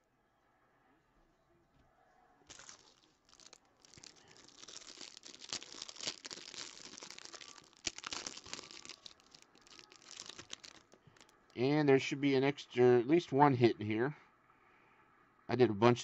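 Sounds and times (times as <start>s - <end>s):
plastic wrapping tearing and crinkling: 2.5s - 11.4s.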